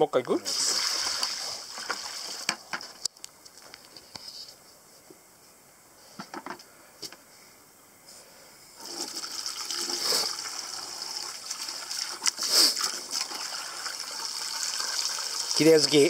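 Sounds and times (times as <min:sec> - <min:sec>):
splashing water: 0:00.4 - 0:02.7, 0:08.8 - 0:16.0
hose water rushing into bucket: 0:00.4 - 0:03.0, 0:08.8 - 0:16.0.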